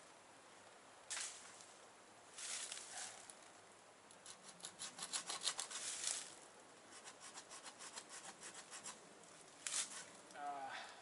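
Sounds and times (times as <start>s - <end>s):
handsaw cutting branch: 4.2s - 6.3s, 6.9s - 9.0s.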